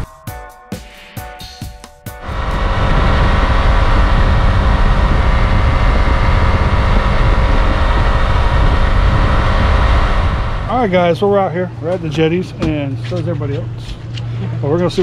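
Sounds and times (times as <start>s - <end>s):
rush of wind and water: 2.2s - 10.9s
outboard motor running: 2.2s - 15.0s.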